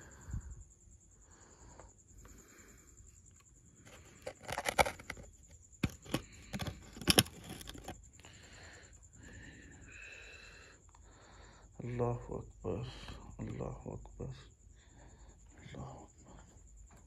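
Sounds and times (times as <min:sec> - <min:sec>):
faint high whine: 0:00.0 - 0:17.0
sharp clicks and knocks: 0:04.2 - 0:08.0.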